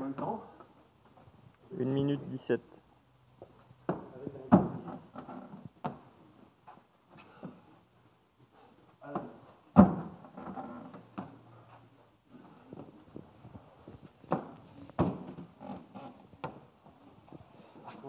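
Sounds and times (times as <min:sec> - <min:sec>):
thuds on rubber gym flooring: 0:03.8 - 0:04.9, 0:09.2 - 0:10.4, 0:14.2 - 0:15.6.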